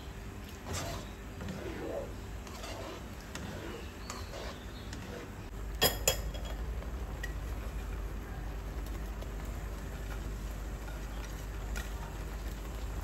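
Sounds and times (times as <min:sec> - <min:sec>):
spatula stirring in a wok: 0:00.5 - 0:05.6, 0:09.2 - 0:13.0.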